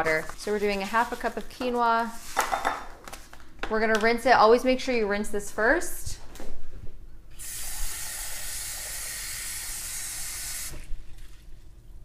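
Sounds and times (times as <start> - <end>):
faucet water pouring: 7.4 - 10.7.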